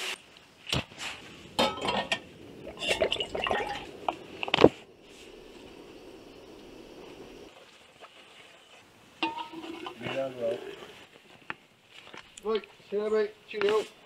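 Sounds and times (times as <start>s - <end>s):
faint steady hiss: 0.0s - 14.0s
metal cookware clinking: 1.6s - 2.2s, 9.2s - 10.2s.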